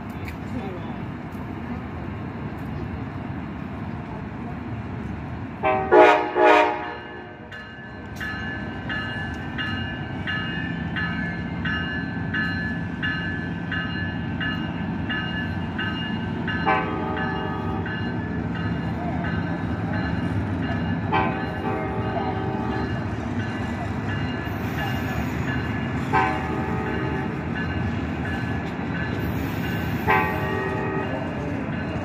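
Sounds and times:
train horn blasts: 5.6 - 7.5, 16.6 - 17.8, 26.0 - 27.3, 29.9 - 31.2
train bell ringing: 6.8 - 32.0.

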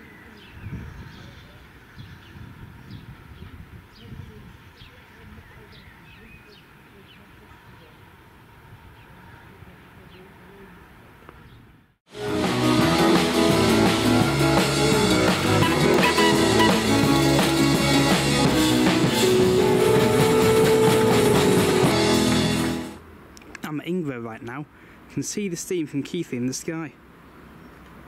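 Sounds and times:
music with drums and guitar: 12.1 - 23.0.

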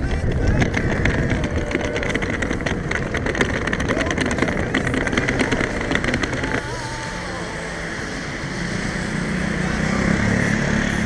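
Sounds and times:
suitcase wheels clattering on bricks: 0.0 - 6.6
low traffic hum: 0.0 - 11.0.

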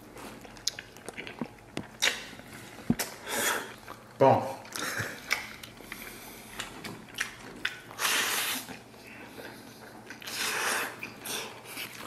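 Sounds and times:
wet chewing: 0.0 - 12.0.

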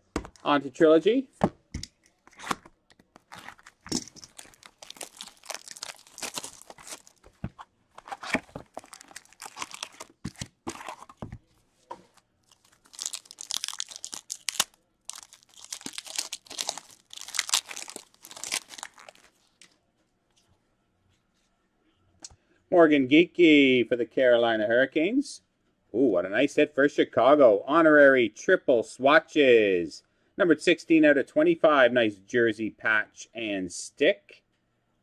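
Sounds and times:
card pack crinkling: 2.2 - 19.7
plastic wrap crinkling and tearing: 2.2 - 19.7.

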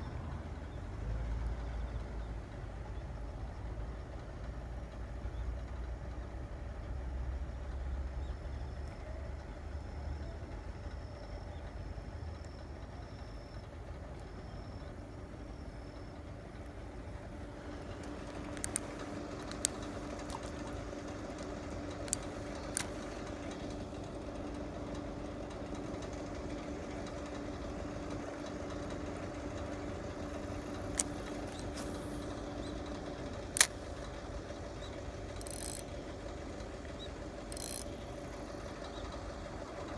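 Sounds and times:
mechanical hum: 0.0 - 39.9
sharp clicks: 17.6 - 24.0, 30.2 - 38.9.

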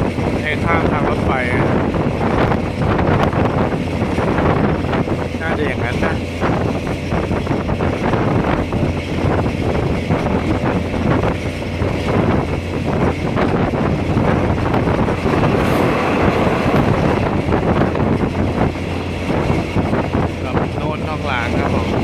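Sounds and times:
low engine hum: 0.0 - 22.0
train running noise: 0.0 - 22.0
wheels clattering on rails: 0.0 - 22.0.

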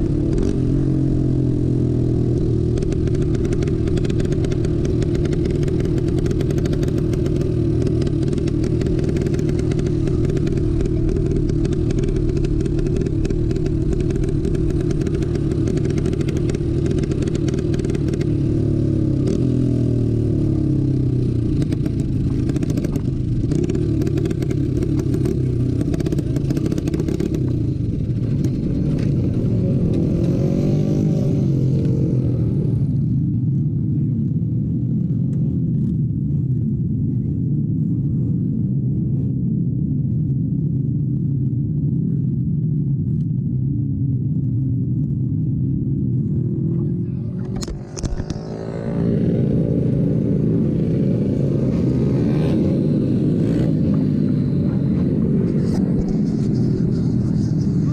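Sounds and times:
kart engine revving: 0.0 - 32.6, 46.9 - 57.9.

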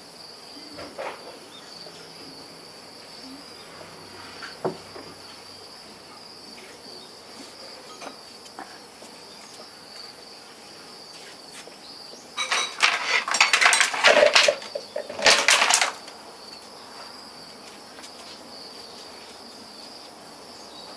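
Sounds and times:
rapid clattering and scraping: 12.4 - 16.2.

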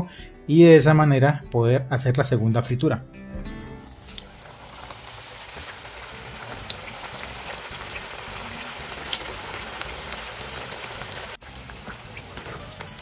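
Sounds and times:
plantain slices sizzling in oil: 3.8 - 13.0.

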